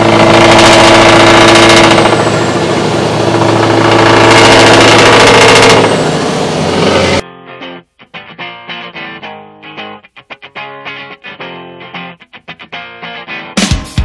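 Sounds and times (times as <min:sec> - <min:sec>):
truck engine running under load: 0:00.0 - 0:07.2
electric guitar music: 0:00.0 - 0:14.0.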